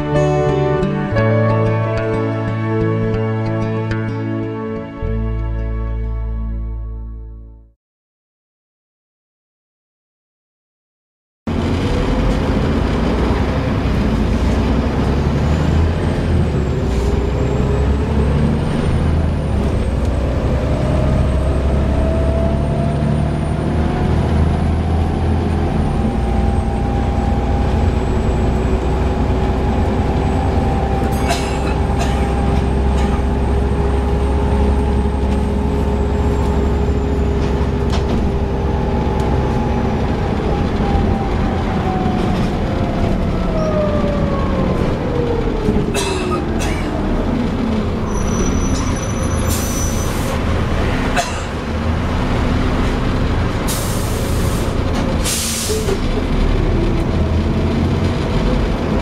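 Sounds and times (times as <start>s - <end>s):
bus gearbox whine: 26.0s - 40.9s.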